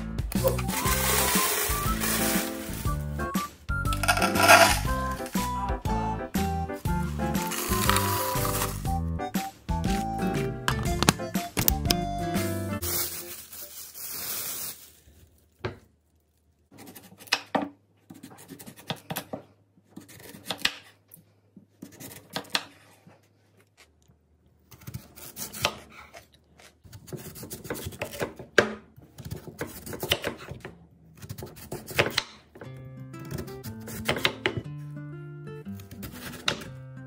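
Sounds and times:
rubbing and scraping containers: 0.4 - 3.3, 3.9 - 5.2, 7.1 - 8.9.

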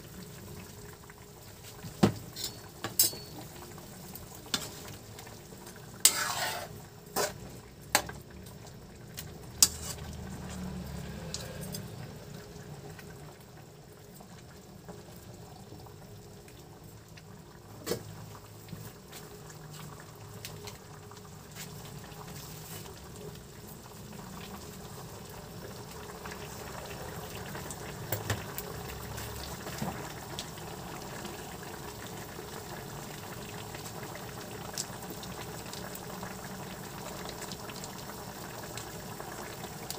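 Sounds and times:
sauce bubbling: 0.0 - 39.9
metal spatula clanking on wok: 2.4 - 3.4.

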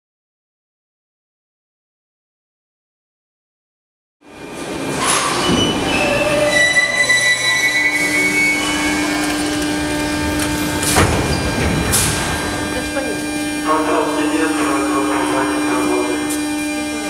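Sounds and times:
train running rumble: 4.3 - 17.0
train brakes squealing: 4.9 - 12.3.

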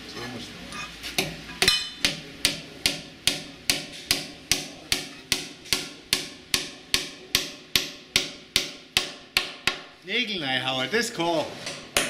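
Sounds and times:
hammer striking nails: 1.6 - 9.9.

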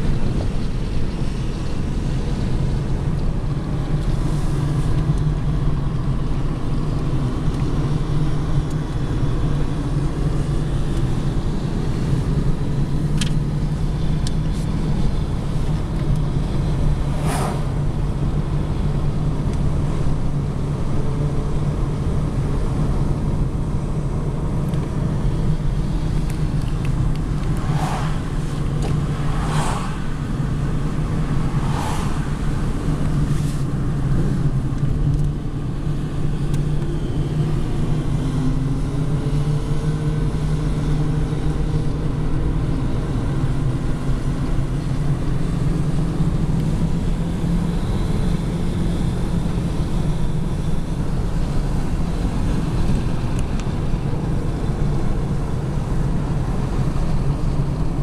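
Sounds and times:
car engine hum: 0.0 - 58.0
tyre and road noise: 0.0 - 58.0
passing cars whooshing: 16.4 - 18.4, 25.7 - 34.6.

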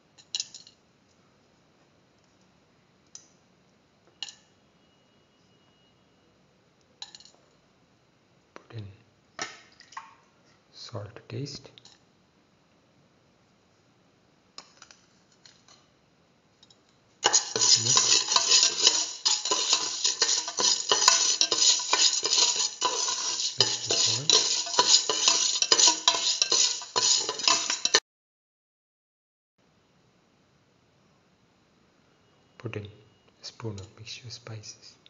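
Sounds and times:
spoon scraping metal pot: 17.2 - 28.0.

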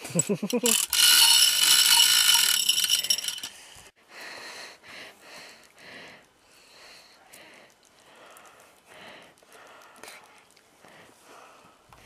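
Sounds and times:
chain rattling through hoist: 0.0 - 3.6.

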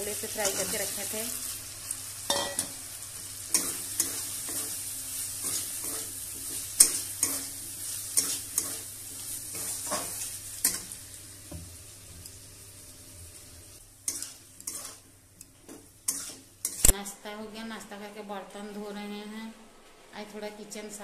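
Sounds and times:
hot oil sizzling: 0.0 - 17.0
metal spatula scraping a pan: 9.5 - 10.9, 14.1 - 15.1, 15.7 - 16.9.

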